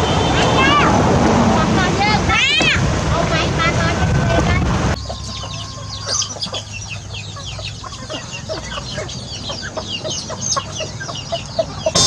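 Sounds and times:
chickens clucking: 0:03.4 - 0:12.0
high falling chirps: 0:05.0 - 0:12.0.

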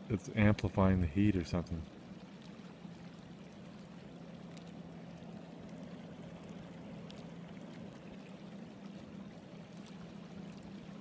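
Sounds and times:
low hum: 0:00.0 - 0:11.0
water rushing in creek: 0:00.0 - 0:11.0
faint ticks: 0:04.3 - 0:04.8.

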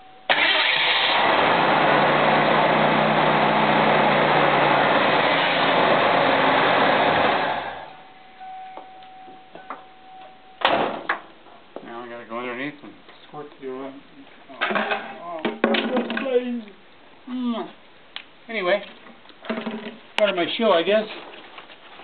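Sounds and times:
car engine idling: 0:00.3 - 0:08.0.

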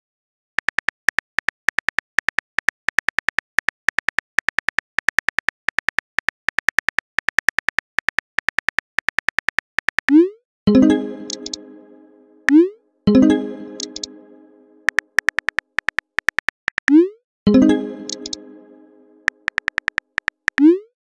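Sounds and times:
keyboard typing clicks: 0:10.7 - 0:16.9, 0:17.5 - 0:20.7.

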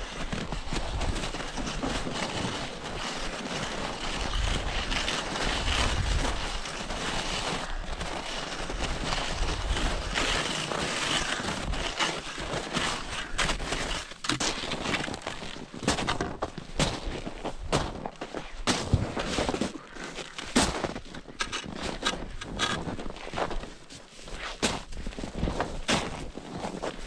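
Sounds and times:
skis crunching through snow: 0:00.0 - 0:27.0
wind buffeting microphone: 0:04.2 - 0:06.6.

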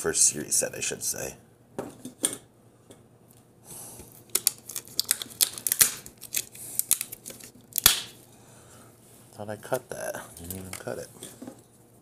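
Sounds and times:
shrink wrap crinkling: 0:04.1 - 0:08.2.

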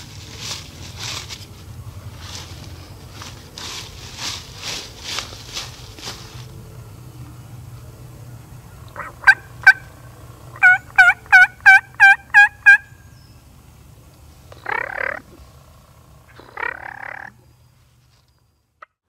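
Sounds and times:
turkey gobbling: 0:08.8 - 0:10.0, 0:10.6 - 0:12.9, 0:14.6 - 0:15.4, 0:16.3 - 0:17.4
turkey yelping: 0:08.9 - 0:10.0, 0:10.6 - 0:12.9, 0:14.6 - 0:15.3, 0:16.3 - 0:17.4
short sharp turkey calls: 0:14.6 - 0:15.4, 0:16.3 - 0:17.4.

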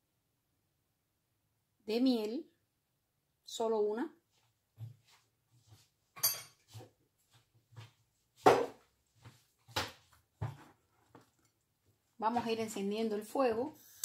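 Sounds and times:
metal utensils clinking on dishes: 0:06.2 - 0:06.7.

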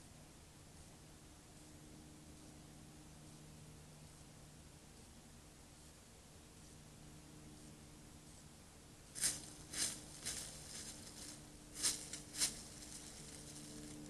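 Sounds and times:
faint steady hum: 0:00.0 - 0:14.0
hooves crunching dry leaves: 0:09.1 - 0:14.0.

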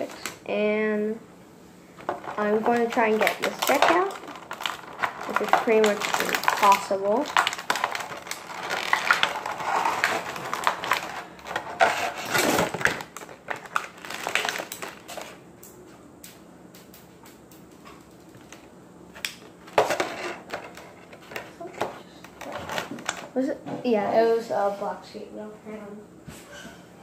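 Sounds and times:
plastic packaging crackling: 0:00.0 - 0:00.5, 0:02.0 - 0:15.4, 0:19.3 - 0:23.4.

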